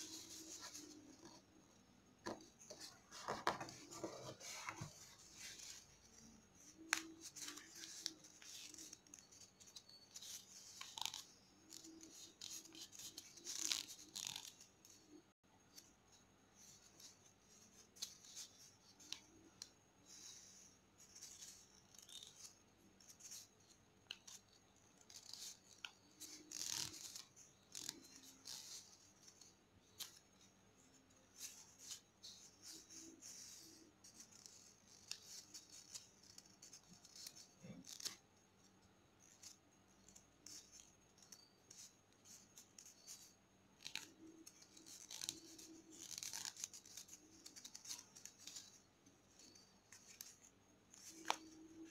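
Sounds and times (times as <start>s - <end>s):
paper rustling and crinkling: 2.3s - 14.6s.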